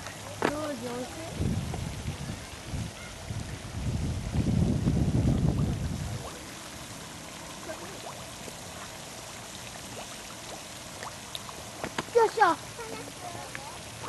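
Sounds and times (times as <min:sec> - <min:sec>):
fountain splashing: 0:00.0 - 0:14.0
wind rumble on microphone: 0:01.0 - 0:06.5.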